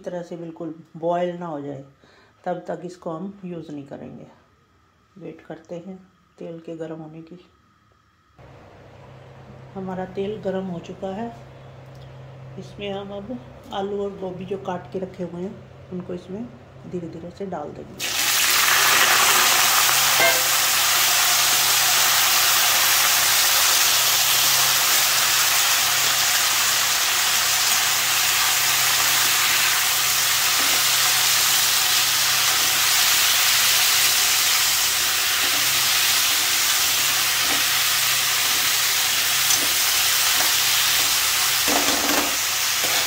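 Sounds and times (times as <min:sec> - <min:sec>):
vegetables sizzling in oil: 0:18.0 - 0:43.0.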